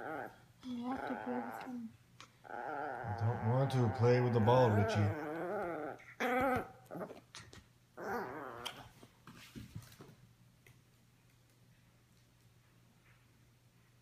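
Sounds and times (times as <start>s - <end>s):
small dog whining and growling: 0.0s - 9.0s.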